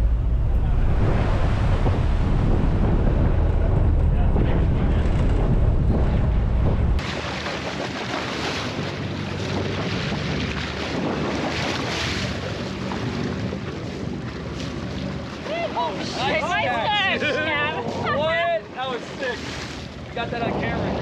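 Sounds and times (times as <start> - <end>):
wind on microphone: 0.0 - 14.4
boat engine running: 0.0 - 21.0
fish splashing in water: 7.0 - 13.7.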